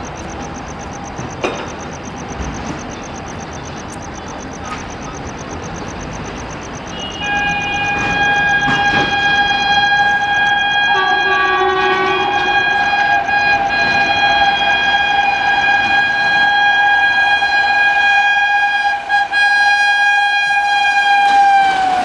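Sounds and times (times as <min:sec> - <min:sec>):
train running noise: 0:00.0 - 0:22.0
train horn blast: 0:06.9 - 0:22.0.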